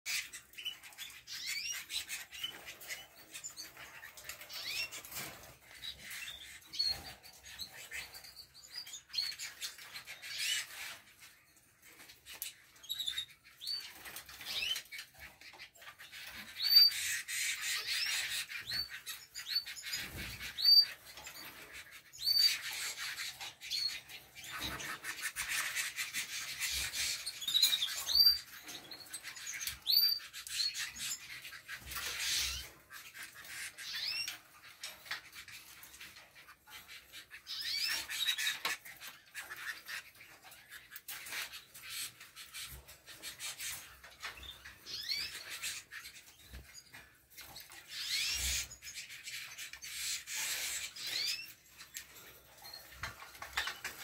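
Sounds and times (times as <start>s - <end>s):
canaries chirping: 0.0s - 54.0s.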